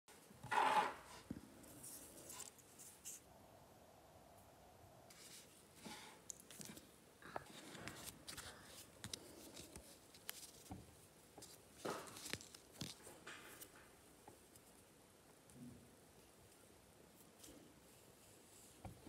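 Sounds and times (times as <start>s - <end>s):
faint rustling and light clicks: 5.1s - 19.0s.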